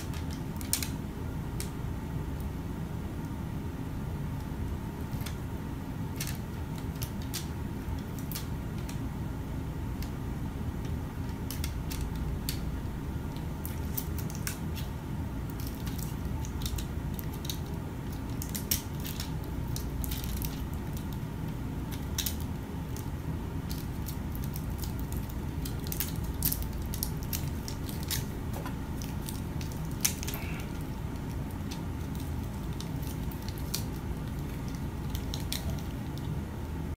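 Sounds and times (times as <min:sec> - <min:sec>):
faint steady hum: 0:00.0 - 0:36.9
low background rumble: 0:00.0 - 0:36.9
small clicks and crackles: 0:06.1 - 0:09.0, 0:10.8 - 0:12.7, 0:13.3 - 0:14.9, 0:15.5 - 0:21.2, 0:21.9 - 0:36.4.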